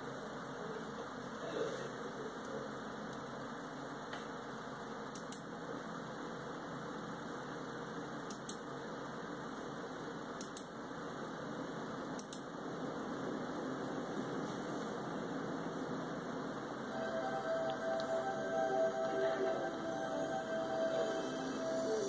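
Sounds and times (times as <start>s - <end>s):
steady fan hiss: 0.0s - 22.0s
computer mouse clicking: 5.1s - 5.5s, 8.3s - 8.6s, 10.4s - 10.7s, 12.2s - 12.5s.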